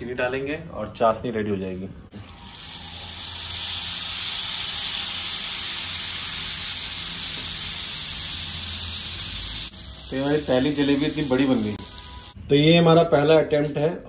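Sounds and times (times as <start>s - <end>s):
batter sizzling in hot oil: 2.2s - 12.4s.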